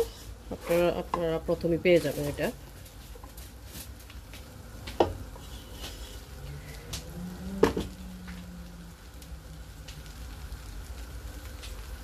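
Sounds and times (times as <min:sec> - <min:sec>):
rice scraping against pot: 0:00.0 - 0:01.2, 0:01.8 - 0:06.9
wooden spatula stirring rice: 0:00.0 - 0:08.5.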